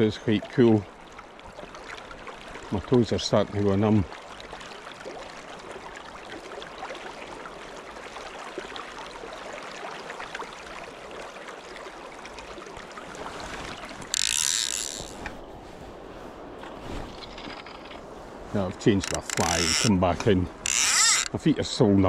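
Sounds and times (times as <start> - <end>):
river rushing: 11.4 - 21.4
fly reel ratchet ticking: 14.2 - 15.2, 19.0 - 19.9, 20.6 - 21.3.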